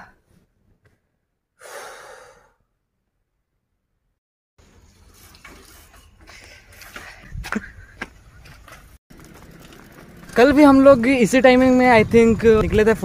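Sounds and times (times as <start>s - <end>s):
outdoor noise: 0.0s - 13.0s
long breath out: 1.6s - 2.6s
bicycle being ridden: 4.6s - 13.0s.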